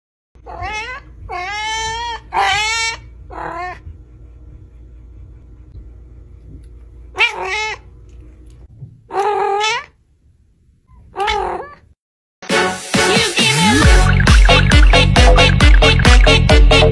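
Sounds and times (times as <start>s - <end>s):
cat meowing: 0.4s - 3.8s, 7.2s - 7.8s, 9.1s - 10.0s.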